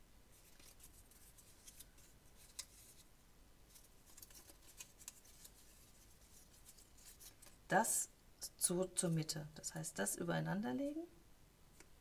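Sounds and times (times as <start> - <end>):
paper rustling: 0.3 - 3.1, 3.7 - 7.6
paper strips clicking: 3.8 - 7.5.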